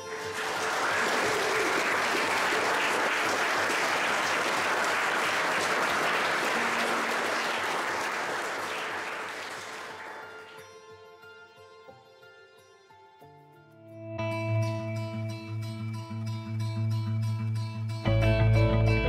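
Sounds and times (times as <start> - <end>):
congregation applauding: 0.0 - 10.7.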